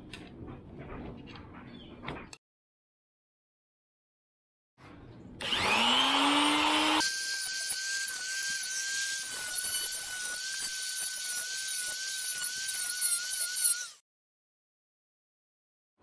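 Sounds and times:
angle grinder cutting steel: 0:05.4 - 0:14.0.

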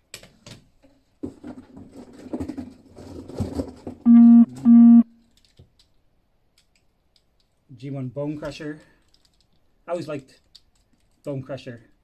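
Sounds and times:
plastic toys clattering: 0:01.2 - 0:04.0, 0:08.4 - 0:11.3
electronic buzzer tones: 0:04.1 - 0:05.1.

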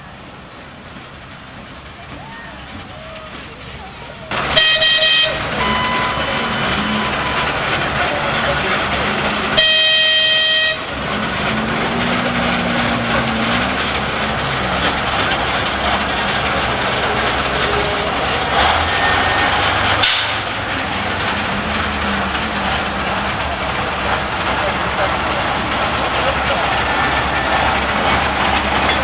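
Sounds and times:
diesel engine running: 0:00.0 - 0:29.0
locomotive horn blast: 0:04.3 - 0:14.9, 0:17.0 - 0:20.7.

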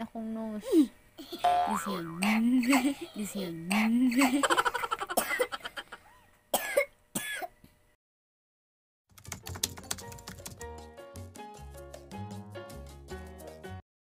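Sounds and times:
small girl coughing: 0:05.1 - 0:05.5, 0:06.5 - 0:07.6
background music: 0:09.3 - 0:13.8.

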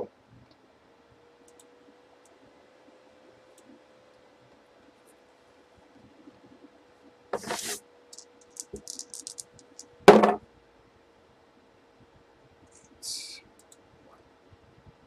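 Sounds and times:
dice knocking on cardboard box: 0:07.4 - 0:07.8, 0:08.5 - 0:09.5, 0:10.1 - 0:10.4
short rustle: 0:07.4 - 0:07.8
dice rattling in hand: 0:07.4 - 0:09.9.

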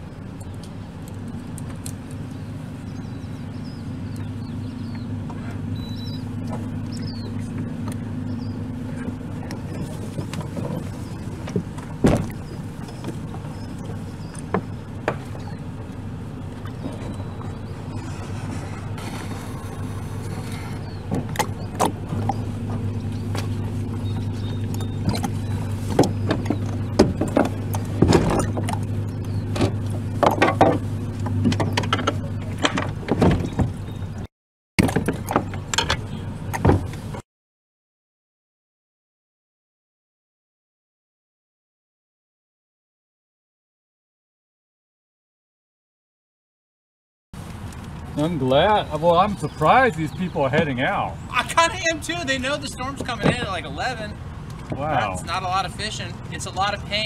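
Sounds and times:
kayak hull knocking against dock: 0:24.8 - 0:28.9, 0:29.5 - 0:33.8.

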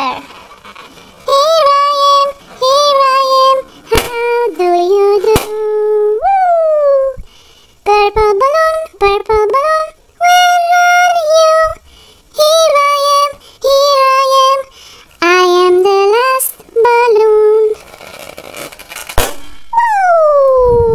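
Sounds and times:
balloon squeaking: 0:00.0 - 0:07.2, 0:17.7 - 0:20.7.

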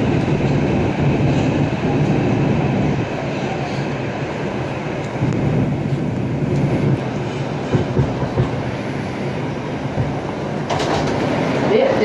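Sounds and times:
subway train rumbling: 0:00.0 - 0:12.0
train knocks: 0:03.8 - 0:12.0.

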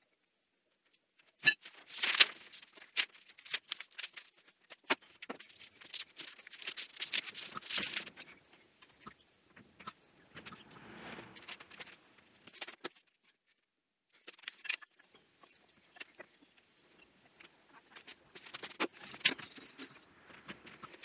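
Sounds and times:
paper sheets rustling: 0:01.6 - 0:08.2.

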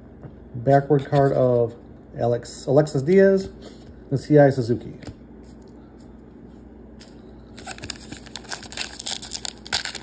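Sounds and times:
wrapper crinkling as torn open: 0:07.6 - 0:10.0.

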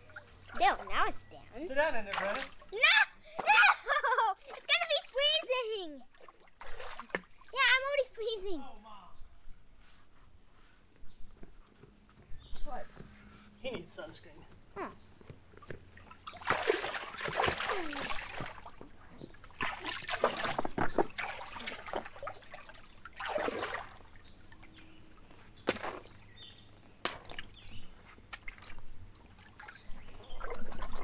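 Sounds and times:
water sloshing in pool: 0:00.0 - 0:08.1, 0:15.5 - 0:31.0.

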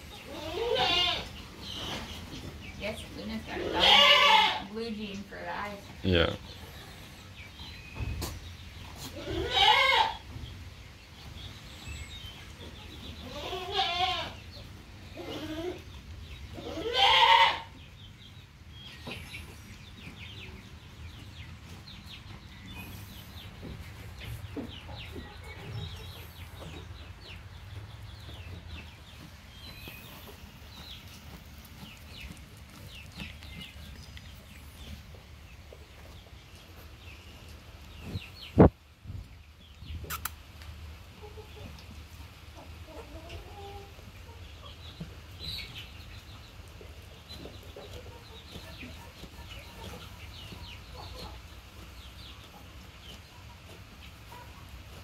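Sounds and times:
goats bleating: 0:00.3 - 0:01.3, 0:03.6 - 0:04.7, 0:09.1 - 0:10.2, 0:13.2 - 0:14.4, 0:16.6 - 0:17.7.

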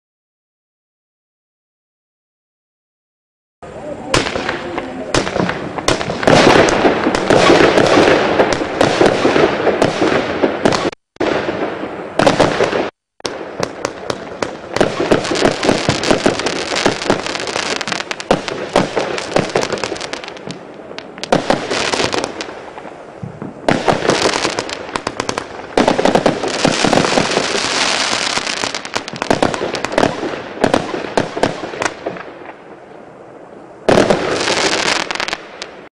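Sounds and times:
fireworks cake firing shots: 0:04.1 - 0:22.6, 0:23.6 - 0:32.3.

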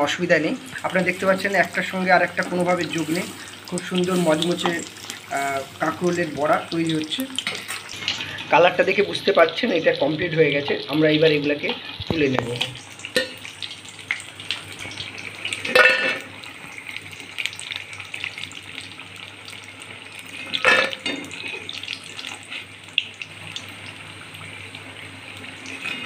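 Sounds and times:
fritters sizzling in hot oil: 0:00.0 - 0:26.0.

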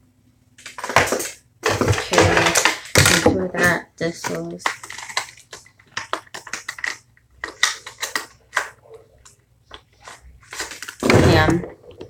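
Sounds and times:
small objects clicking and crackling: 0:04.2 - 0:09.4.

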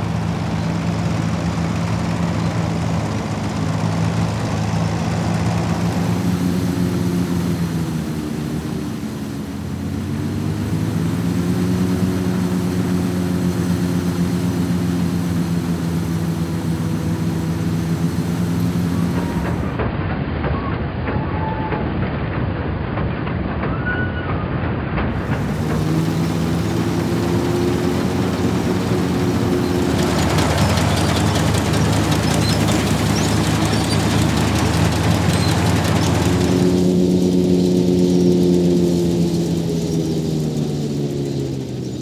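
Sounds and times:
tractor diesel engine running: 0:00.0 - 0:20.4, 0:25.0 - 0:42.0
threshing machinery rattling: 0:24.9 - 0:42.0.

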